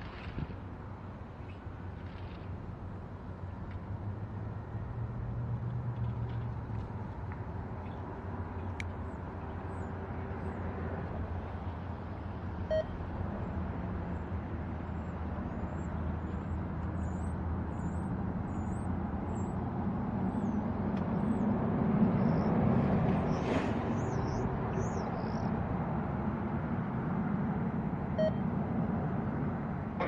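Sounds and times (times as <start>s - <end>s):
short beep: 28.2s - 28.4s.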